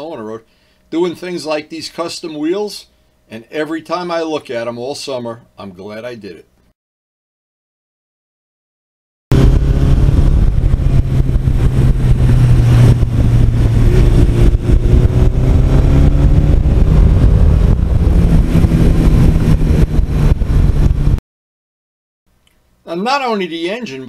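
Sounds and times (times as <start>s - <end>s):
motorcycle engine running: 9.3s - 21.2s
wind and road noise: 9.3s - 21.2s.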